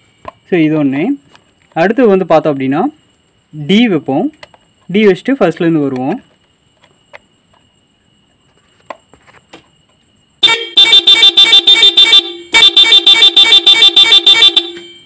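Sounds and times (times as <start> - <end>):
motorcycle horns pulsing beeps: 10.4 - 15.0.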